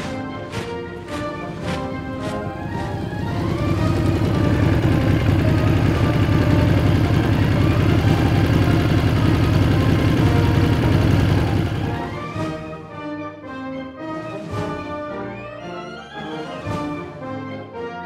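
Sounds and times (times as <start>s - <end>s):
brass music: 0.0s - 18.0s
motorcycles rumbling past: 1.8s - 12.2s.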